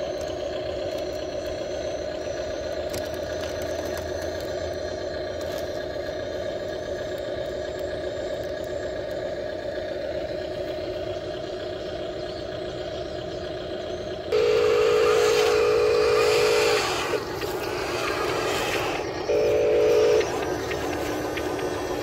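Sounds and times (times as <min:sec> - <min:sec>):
electric motor and gear hum: 0:00.0 - 0:22.0
loud buzzing whine: 0:14.1 - 0:22.0.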